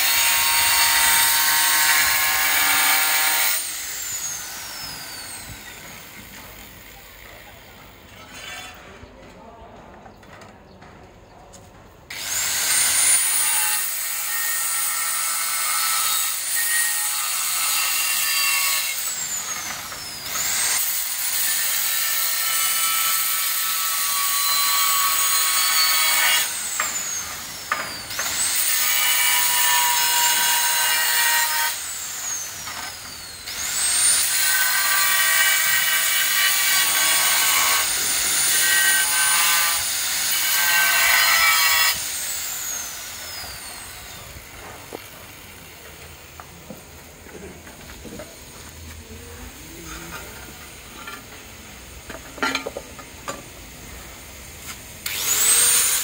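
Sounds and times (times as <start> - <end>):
angle grinder cutting tile: 0.0 - 7.5, 12.1 - 46.1, 55.0 - 56.0.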